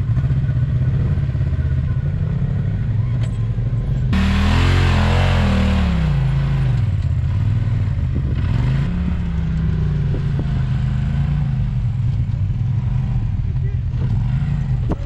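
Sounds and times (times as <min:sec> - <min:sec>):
engine revving under load: 0:04.0 - 0:15.0.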